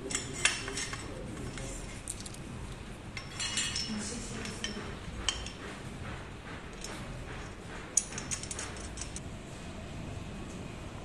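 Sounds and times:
metal tubes clinking and clicking: 0:00.0 - 0:05.8, 0:06.7 - 0:09.2.

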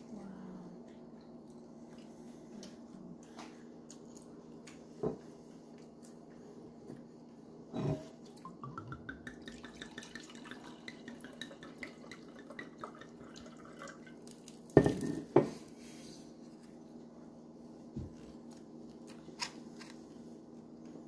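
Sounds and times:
bottle knocking on counter: 0:14.8 - 0:15.5.

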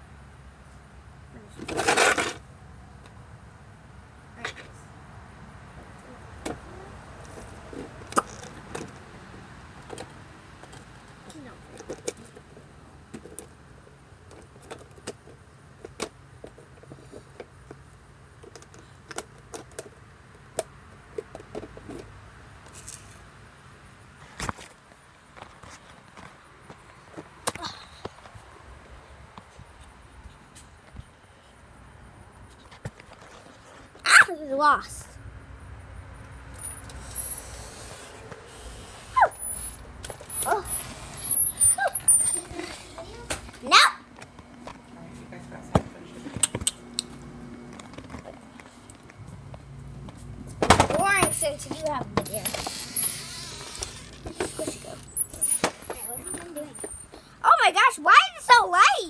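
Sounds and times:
dog yelping: 0:39.0 - 0:39.5, 0:40.4 - 0:40.8, 0:41.5 - 0:42.4.

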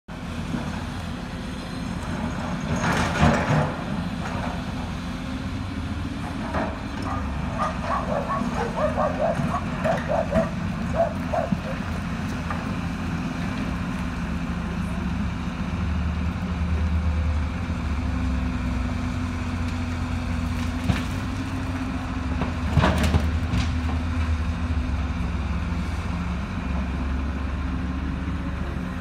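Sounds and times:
low engine rumble: 0:00.1 - 0:29.0
dogs barking: 0:07.0 - 0:12.0.

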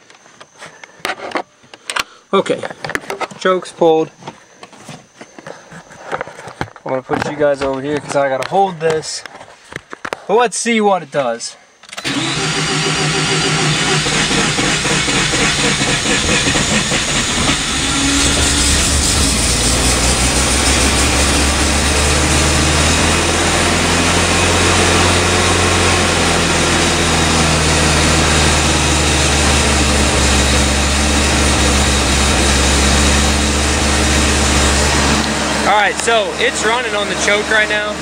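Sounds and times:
rotary engine starting and running: 0:11.8 - 0:38.0.

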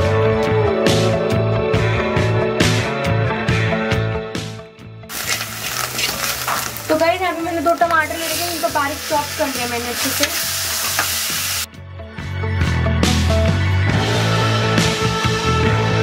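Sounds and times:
steel ladle scraping and stirring: 0:05.1 - 0:06.9
masala sizzling in a pan: 0:05.1 - 0:11.7.

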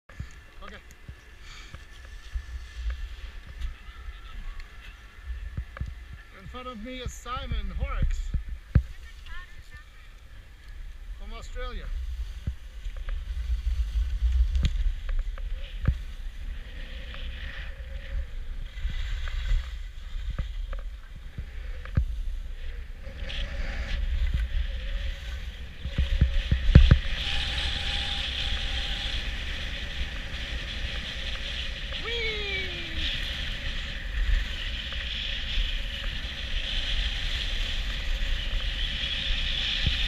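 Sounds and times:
wind buffeting microphone: 0:01.0 - 0:40.0
skis hissing and scraping on snow: 0:11.2 - 0:40.0.

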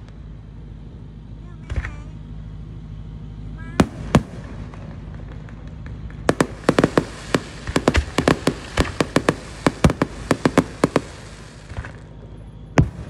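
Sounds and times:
fireworks bangs: 0:03.8 - 0:13.0
fireworks hiss: 0:03.8 - 0:13.0.

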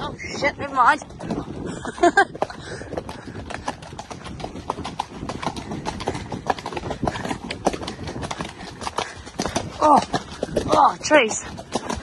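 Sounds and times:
horse hoofbeats on dirt: 0:00.0 - 0:12.0.

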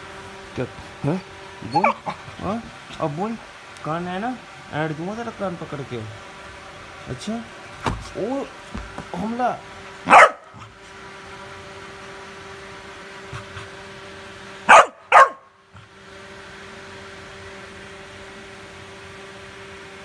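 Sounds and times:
puppy barking: 0:01.6 - 0:02.3, 0:10.1 - 0:10.6, 0:14.7 - 0:15.5.

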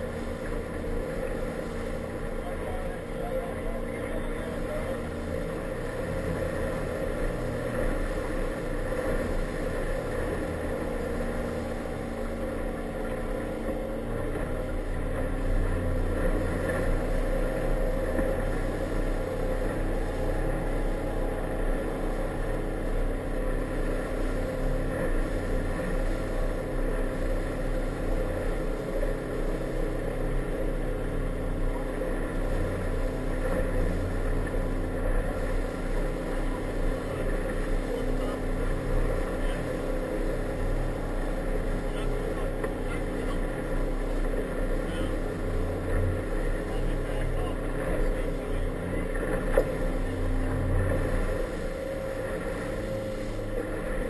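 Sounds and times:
motorboat engine running: 0:00.0 - 0:54.0
water noise from hull: 0:00.0 - 0:54.0.

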